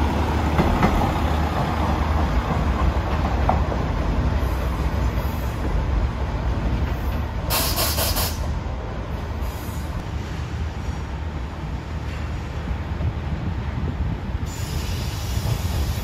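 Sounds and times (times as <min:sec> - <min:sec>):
compressed air hiss: 0:07.5 - 0:08.5, 0:14.4 - 0:16.0.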